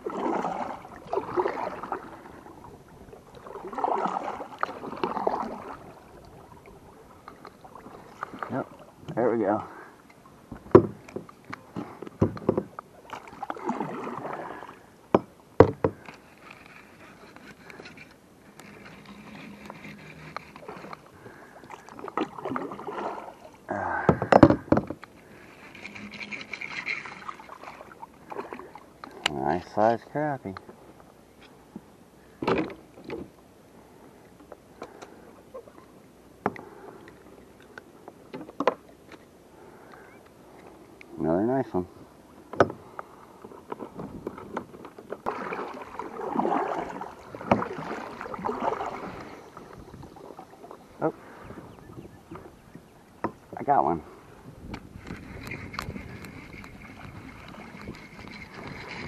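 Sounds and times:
fish and fishing gear handling knocks: 0:10.5 - 0:12.7, 0:15.2 - 0:16.1, 0:24.1 - 0:25.0
fishing rod and reel knocks: 0:24.2 - 0:27.4.

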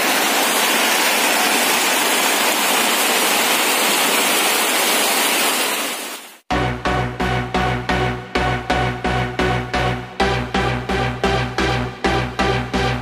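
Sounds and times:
heavy rain falling: 0:00.0 - 0:06.4.

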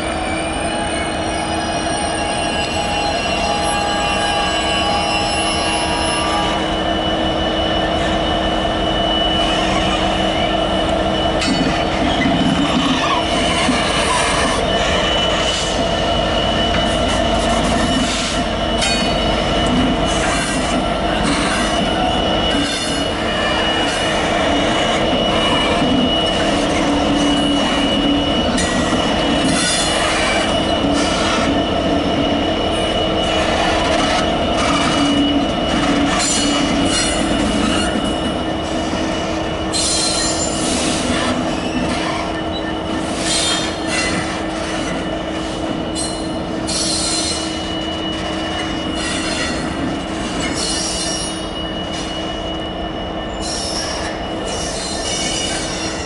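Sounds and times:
diesel locomotive engines: 0:00.0 - 0:56.0
high wheel squeal: 0:00.0 - 0:56.0.

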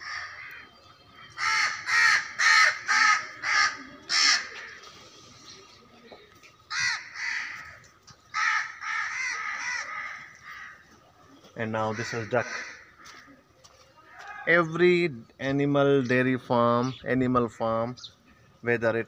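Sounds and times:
crows cawing: 0:00.0 - 0:05.1, 0:06.7 - 0:11.0, 0:11.6 - 0:14.5.

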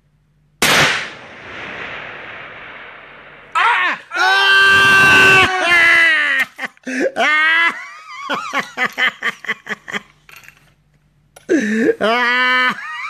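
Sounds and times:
person laughing: 0:05.3 - 0:10.2, 0:11.5 - 0:13.0.

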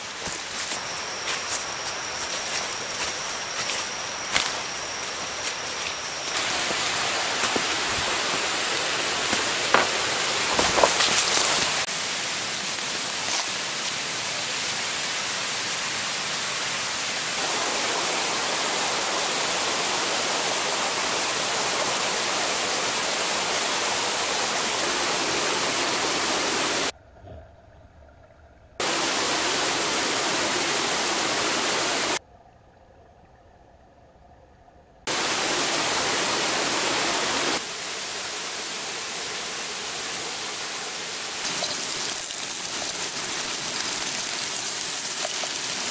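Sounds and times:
stream and waterfall rushing: 0:00.0 - 0:26.9, 0:28.8 - 0:32.2, 0:35.1 - 0:45.9.

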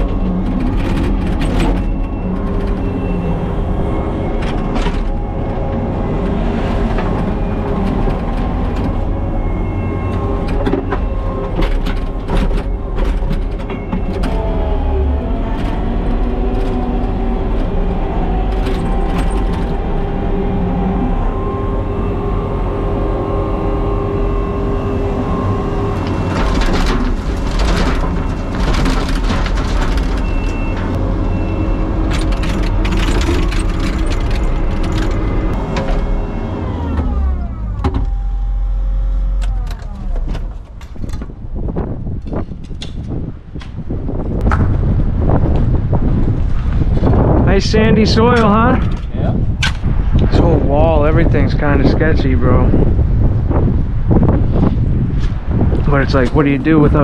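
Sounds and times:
metal clanks and knocks: 0:00.0 - 0:14.7, 0:26.0 - 0:36.2
heavy engine whining: 0:00.0 - 0:57.0.

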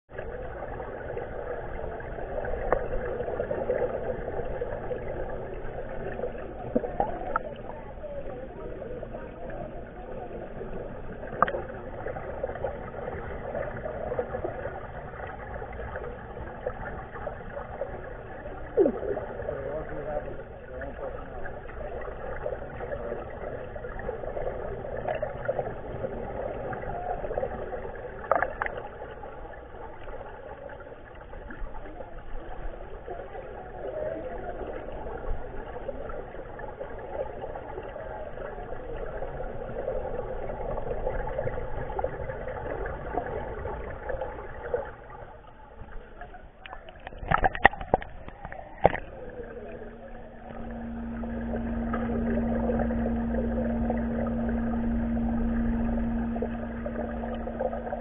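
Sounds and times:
muffled underwater water noise: 0:00.0 - 0:58.0.

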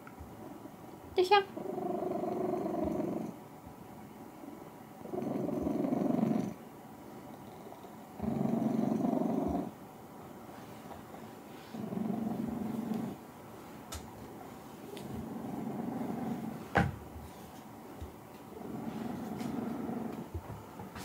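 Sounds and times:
cat purring loudly: 0:01.5 - 0:03.4, 0:04.4 - 0:06.6, 0:07.3 - 0:09.8, 0:11.6 - 0:13.2, 0:14.9 - 0:16.8, 0:18.5 - 0:20.5.

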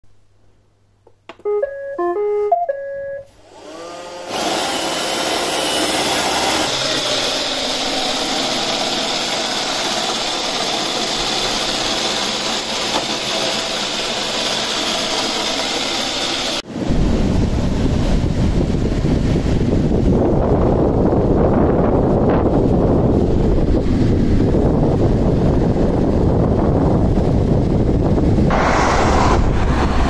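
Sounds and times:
beeping tune: 0:01.4 - 0:03.3
robot vacuum running: 0:03.5 - 0:16.6.

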